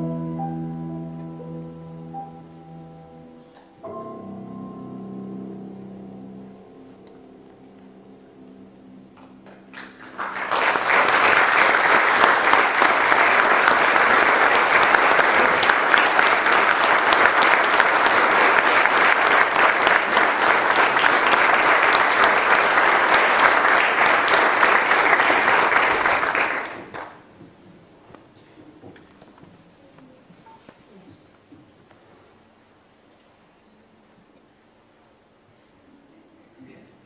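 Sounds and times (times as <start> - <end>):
piano and cello note: 0.0 - 11.0
audience applauding: 9.4 - 27.3.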